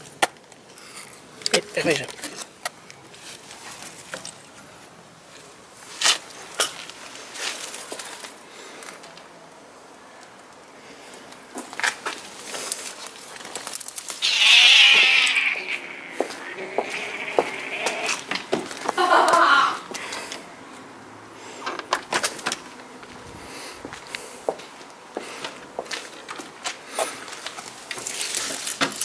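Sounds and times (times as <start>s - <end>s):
rustling in plants: 2.0s - 9.4s, 10.8s - 19.3s, 21.4s - 29.0s
loud animal cry: 14.2s - 19.8s.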